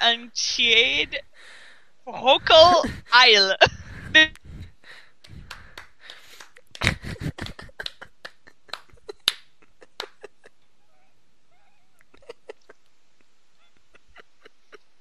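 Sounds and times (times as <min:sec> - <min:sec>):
stifled laughter: 0:06.3 - 0:10.6, 0:11.9 - 0:15.0.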